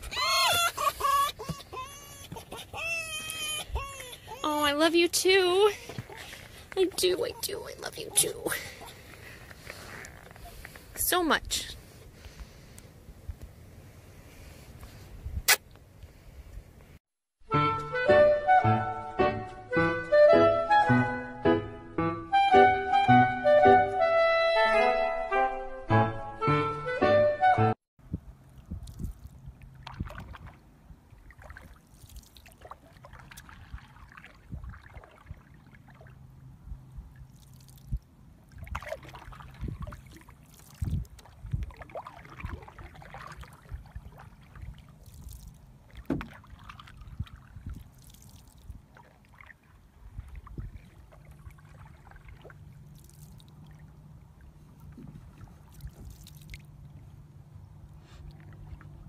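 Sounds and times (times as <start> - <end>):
paddle splashing through water: 5.8 - 7.3, 28.5 - 36.4, 37.1 - 57.2
paddle knocking against canoe hull: 46.0 - 46.4.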